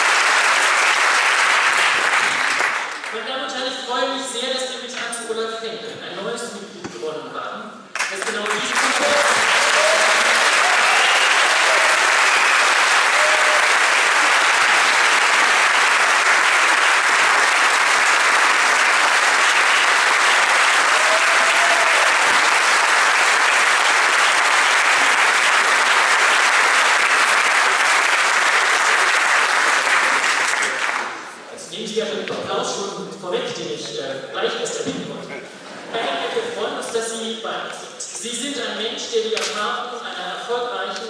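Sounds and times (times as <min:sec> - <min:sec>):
large audience applause: 0:00.0 - 0:03.2, 0:08.0 - 0:31.4.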